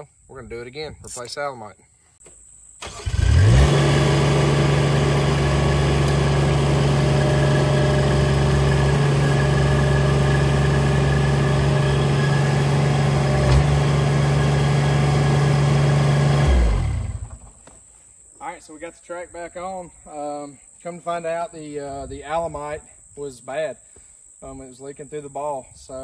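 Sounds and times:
engine cranking and starting: 0:02.8 - 0:17.5
engine running steadily: 0:03.1 - 0:17.5.

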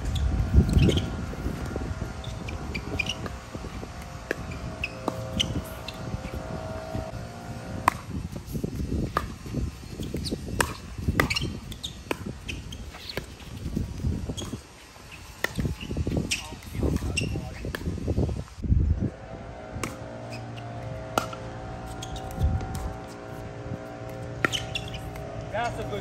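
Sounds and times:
low rumble: 0:17.9 - 0:26.0.

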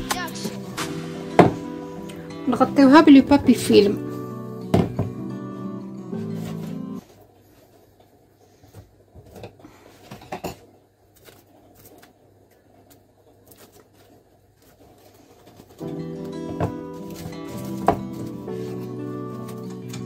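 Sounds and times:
background music: 0:00.0 - 0:07.0, 0:15.8 - 0:20.0
cling film crinkling: 0:17.0 - 0:20.0.

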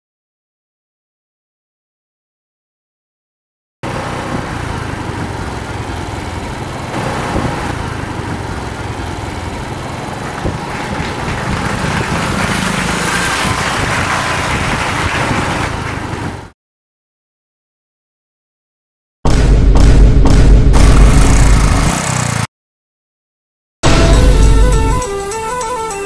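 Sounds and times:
vehicle engine running: 0:03.8 - 0:16.5, 0:19.4 - 0:22.5
road and wind noise: 0:03.8 - 0:16.6, 0:20.8 - 0:22.5.

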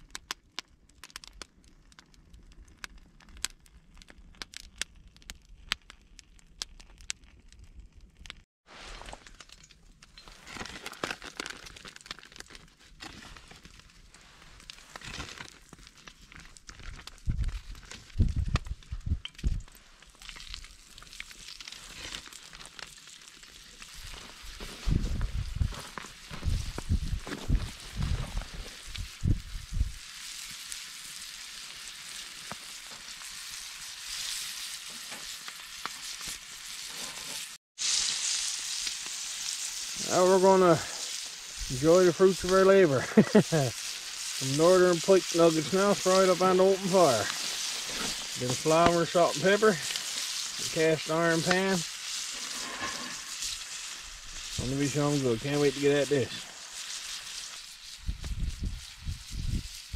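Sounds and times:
wood fire crackling: 0:00.0 - 0:59.9
fish frying in oil: 0:19.6 - 0:59.9
fat sizzling in a hot pan: 0:19.7 - 0:59.9.

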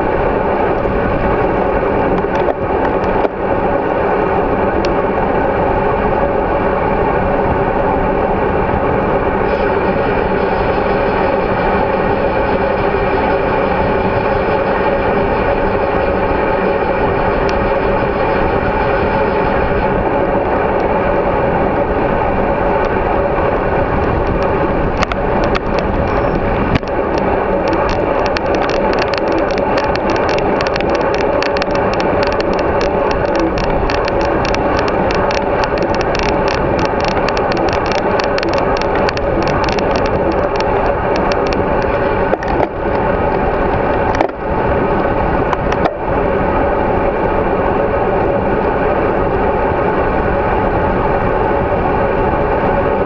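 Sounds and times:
wind and road noise: 0:00.0 - 0:53.0
fine crackling clicks: 0:02.1 - 0:03.4, 0:22.8 - 0:46.1.

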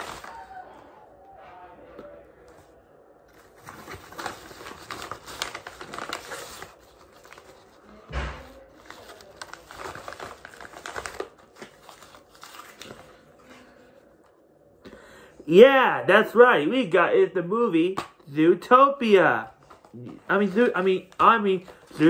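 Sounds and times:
paper envelope tearing and rustling: 0:00.0 - 0:00.6, 0:03.3 - 0:13.2.

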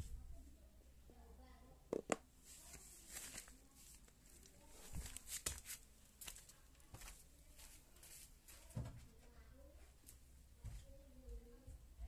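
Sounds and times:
faint rustles: 0:02.4 - 0:11.5.

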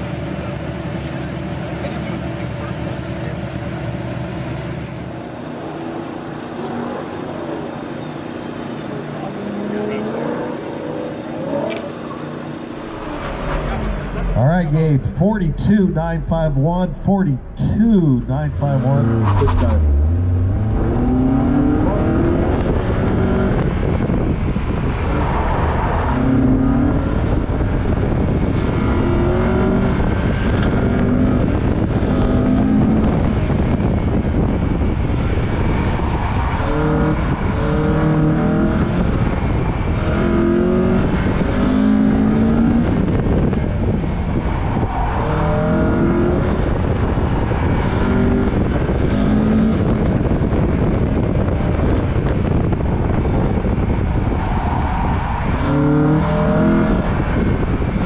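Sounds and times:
car engine revving: 0:00.0 - 0:58.0
road rumble: 0:00.0 - 0:58.0.

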